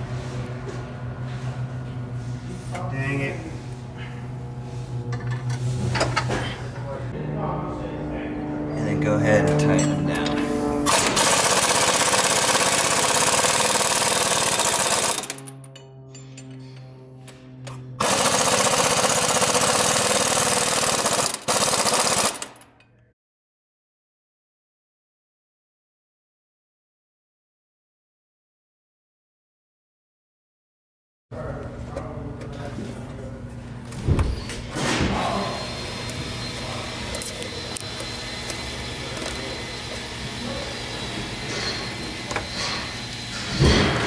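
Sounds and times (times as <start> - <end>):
steady low hum: 0.0 - 11.2, 15.2 - 18.1.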